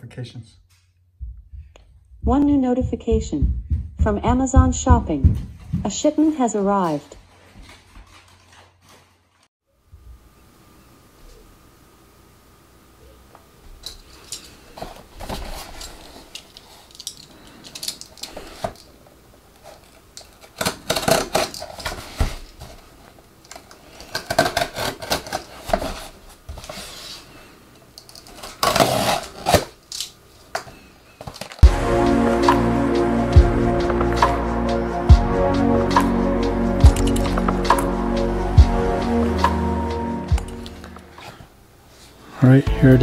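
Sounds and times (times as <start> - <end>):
utility knife cutting cardboard: 24.1 - 25.7, 28.6 - 29.7.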